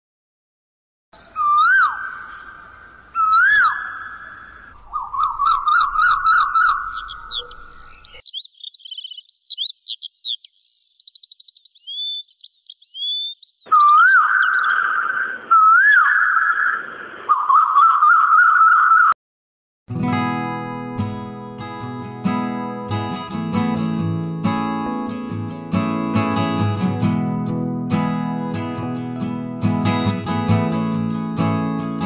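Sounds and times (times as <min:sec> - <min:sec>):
birds chirping and trilling: 0:01.2 - 0:19.2
birds warbling: 0:01.2 - 0:19.2
birds whistling calls: 0:01.2 - 0:19.2.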